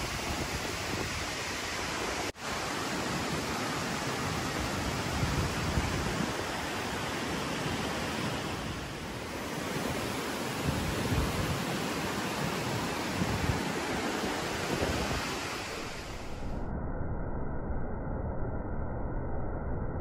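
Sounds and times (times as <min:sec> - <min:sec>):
rushing water: 0:00.0 - 0:16.5
wind buffeting microphone: 0:04.4 - 0:16.5.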